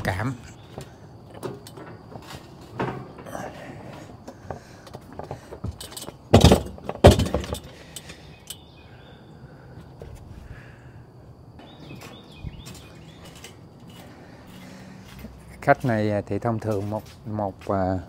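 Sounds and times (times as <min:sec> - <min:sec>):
gear clunking in truck bed: 0:00.6 - 0:08.2
light knocks and rattles: 0:04.0 - 0:08.2.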